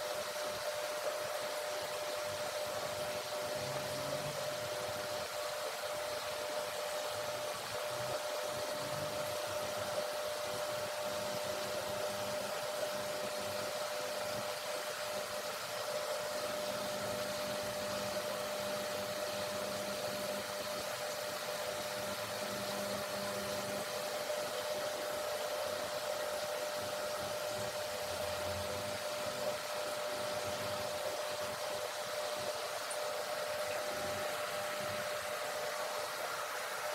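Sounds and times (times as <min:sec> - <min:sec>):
steady hiss: 0:00.0 - 0:36.9
mid-pitched hum: 0:15.2 - 0:36.9.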